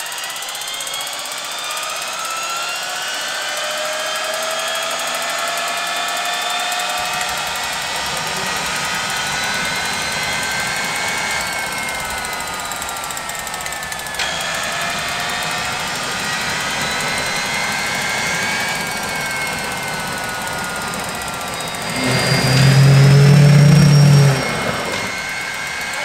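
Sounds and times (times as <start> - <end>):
gas turbine whine: 0.0 - 26.0
loud low buzz: 13.9 - 25.9.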